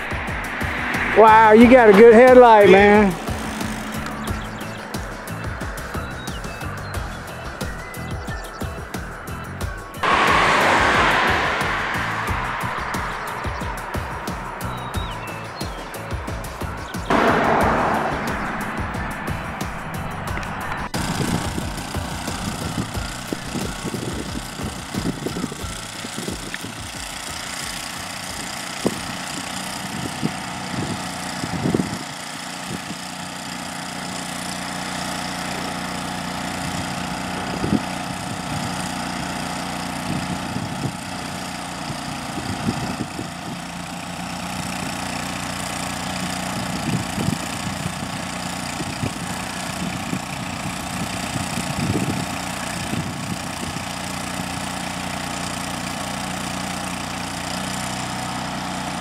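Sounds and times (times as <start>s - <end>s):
engine idling: 0.0s - 7.4s.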